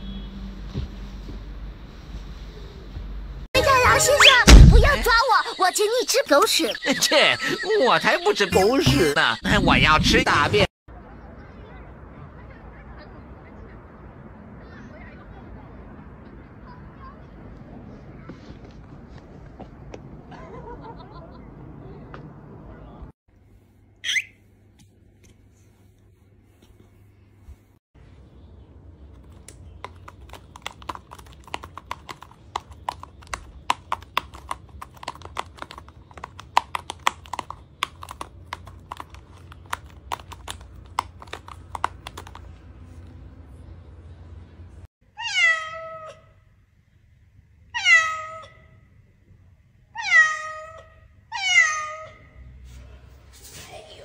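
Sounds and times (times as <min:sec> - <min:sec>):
cat meowing: 0:45.2 - 0:46.2, 0:47.7 - 0:48.6, 0:50.0 - 0:52.3.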